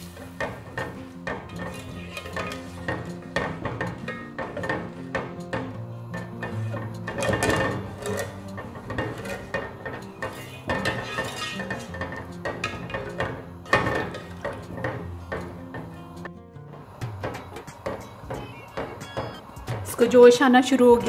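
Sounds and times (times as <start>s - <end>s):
spatula scraping a metal pot: 0.0s - 16.1s.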